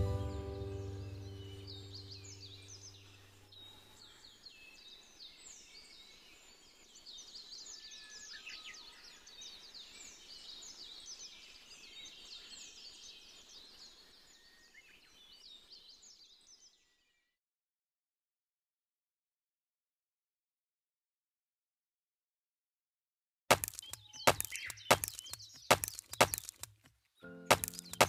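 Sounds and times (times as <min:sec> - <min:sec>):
background music: 0:00.0 - 0:02.2, 0:27.2 - 0:28.0
small birds chirping: 0:00.0 - 0:17.3, 0:23.5 - 0:28.0.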